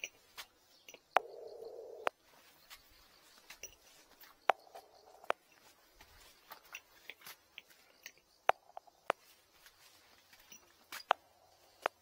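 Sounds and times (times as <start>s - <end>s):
footsteps on concrete and gravel: 2.1s - 12.0s.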